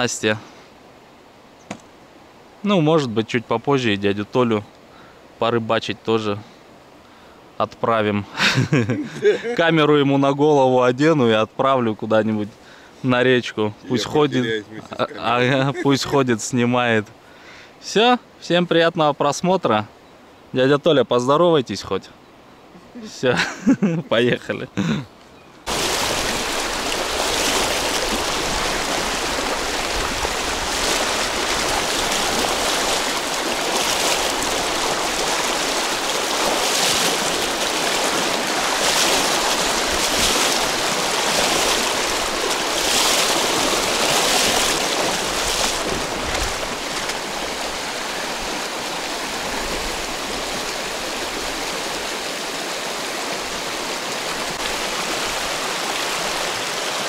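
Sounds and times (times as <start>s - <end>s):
river water rushing: 24.8s - 57.0s.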